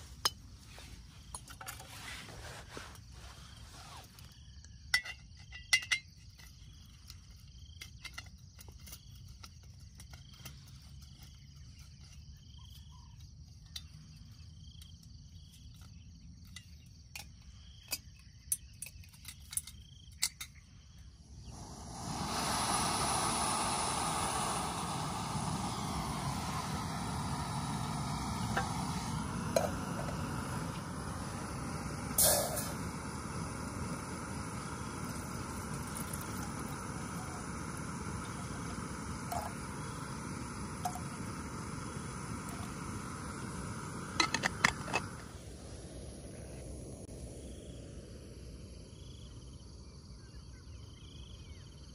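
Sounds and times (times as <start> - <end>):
gas burner hissing: 0.0 - 16.0, 20.9 - 49.5
gas stove igniter clicks: 44.0 - 45.2.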